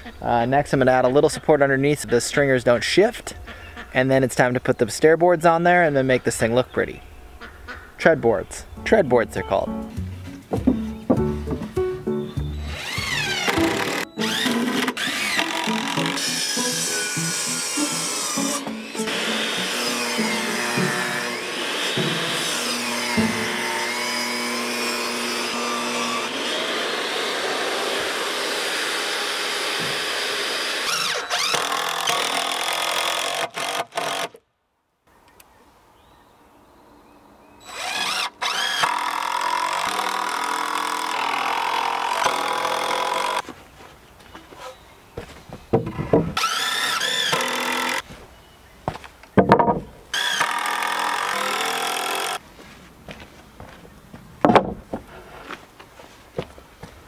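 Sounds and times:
cordless drill driving screws: 12.6s - 27.3s, 28.9s - 34.4s, 37.7s - 43.4s, 46.4s - 48.0s, 50.2s - 52.4s.

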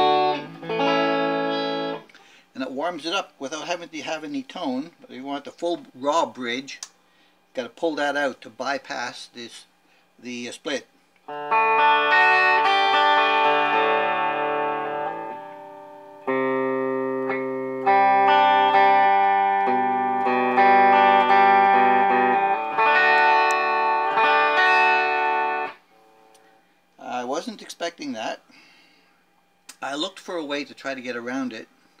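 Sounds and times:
electric guitar chords strummed: 0.0s - 2.1s, 11.3s - 25.8s.

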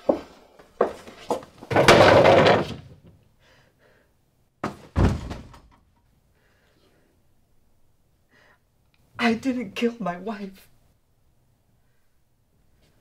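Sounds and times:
knocks and thumps: 0.8s - 3.1s, 4.6s - 5.8s
door banging shut: 1.7s - 2.9s, 4.6s - 5.8s
heavy thuds: 4.6s - 5.8s.

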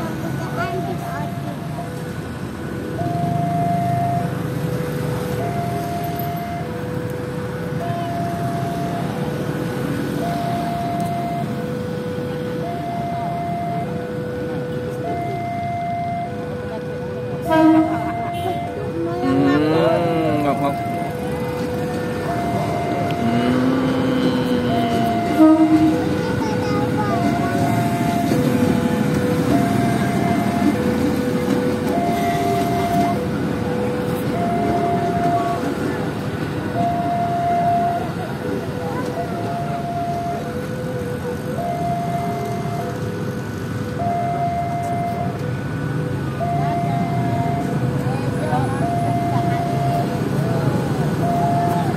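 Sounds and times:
traffic rumble: 0.0s - 51.9s
two-tone electronic alarm: 2.9s - 35.9s, 36.7s - 45.4s, 46.0s - 51.9s
train wheels rumbling on rails: 20.0s - 44.1s.

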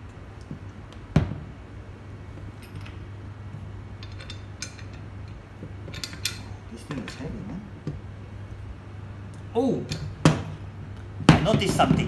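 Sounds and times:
metal parts knocking and clinking: 4.0s - 7.3s.

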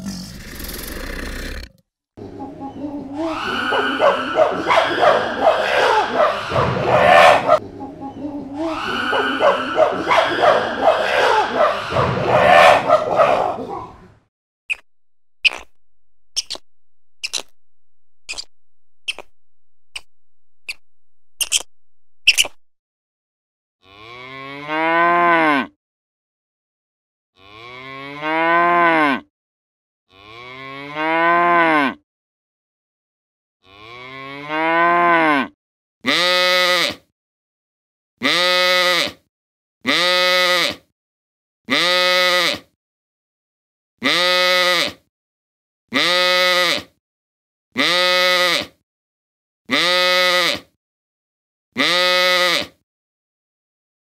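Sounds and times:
farm animals calling: 2.2s - 14.1s.

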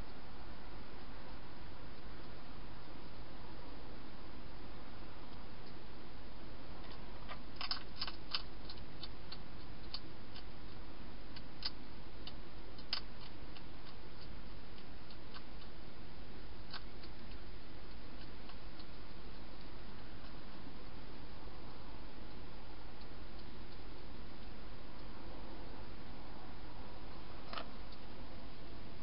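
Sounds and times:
hedgehog crunching dry food: 6.8s - 24.5s.

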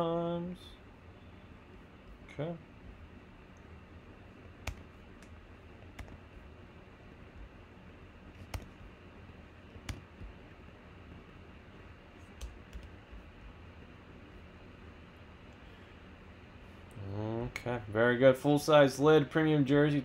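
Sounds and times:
computer key and mouse clicks: 4.6s - 6.2s, 8.4s - 8.8s.

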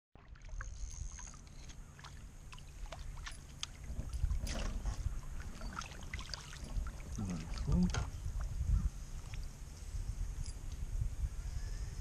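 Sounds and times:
fish splashing in water: 0.2s - 7.7s.

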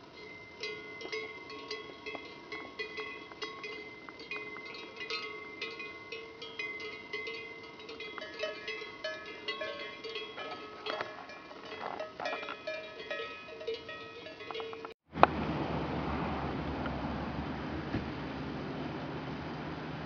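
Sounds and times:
cowbells clanking: 0.0s - 15.0s.

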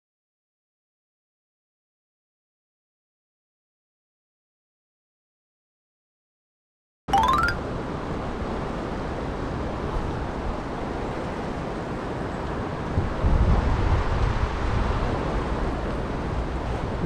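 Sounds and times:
river water flowing: 7.1s - 8.2s
wind buffeting microphone: 12.8s - 17.0s.

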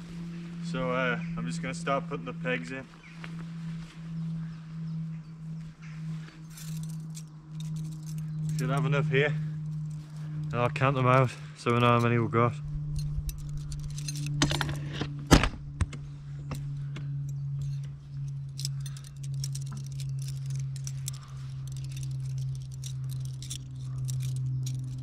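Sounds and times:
steady low hum: 0.0s - 25.0s
metal tent pegs clinking: 6.4s - 15.2s, 16.5s - 25.0s.

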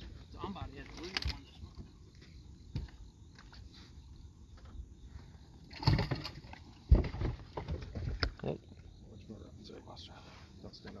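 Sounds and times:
knocks and thumps on boat deck: 5.7s - 8.5s.

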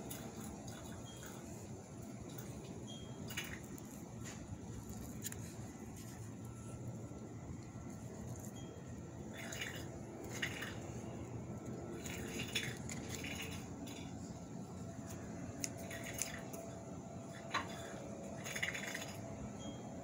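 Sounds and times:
dry roots rustling and crackling: 3.3s - 8.6s.

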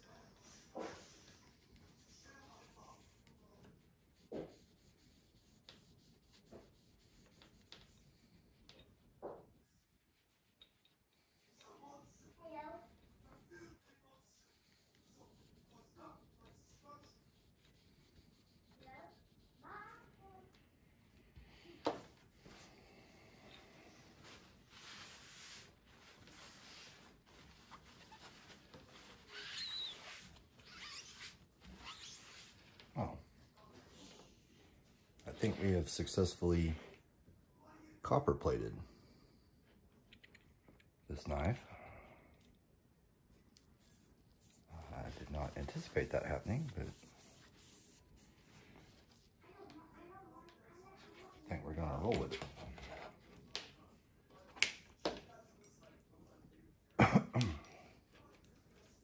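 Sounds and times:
cloth rubbing against knife blade: 24.1s - 33.2s, 43.8s - 49.3s.

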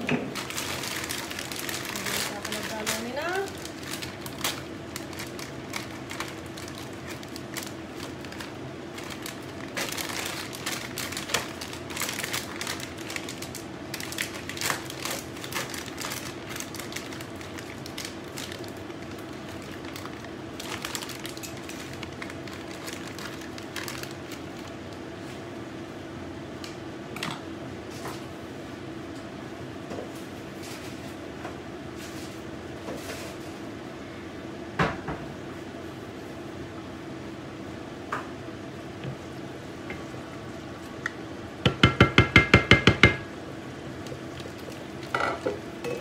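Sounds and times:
steady low hum: 0.0s - 46.0s
plastic bags crinkling: 0.3s - 25.0s, 44.0s - 45.2s.

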